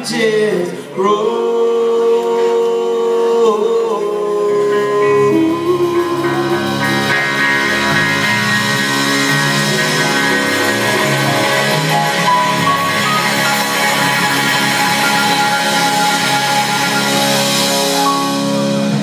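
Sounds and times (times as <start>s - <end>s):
country-rock band playing: 4.2s - 19.0s
bass notes: 4.6s - 19.0s
cymbals: 5.3s - 19.0s.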